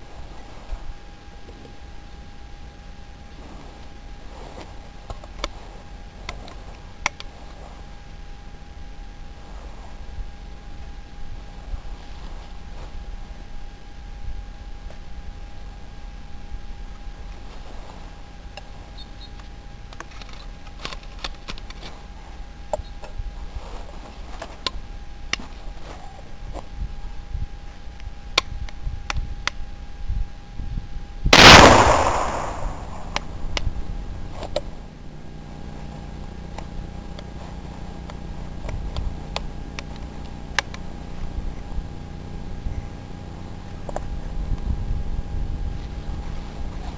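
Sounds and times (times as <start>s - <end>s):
gunshot with echo: 31.3s - 33.4s.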